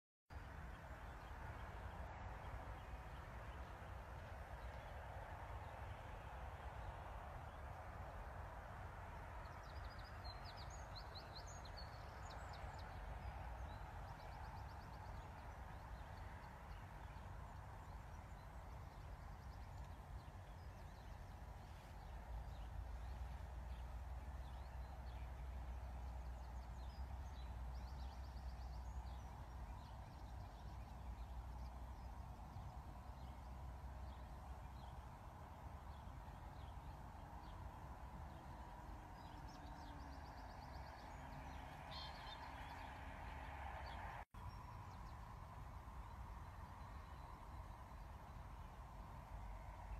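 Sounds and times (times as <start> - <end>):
small birds chirping: 9.4 - 45.2.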